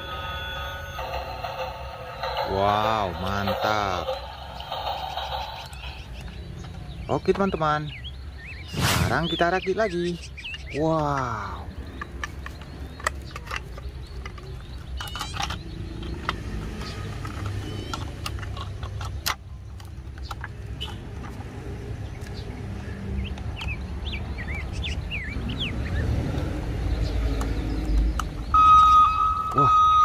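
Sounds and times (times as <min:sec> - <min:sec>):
birds chirping: 0:00.0 - 0:30.0
plastic toy clicks and knocks: 0:11.9 - 0:21.5.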